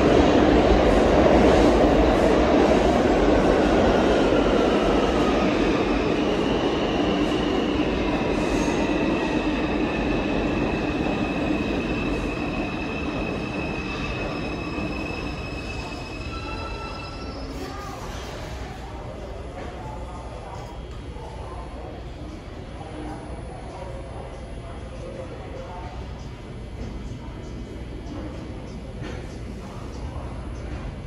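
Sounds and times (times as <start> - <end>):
subway train rumbling: 0.0 - 31.0
train wheels squealing: 7.2 - 18.3.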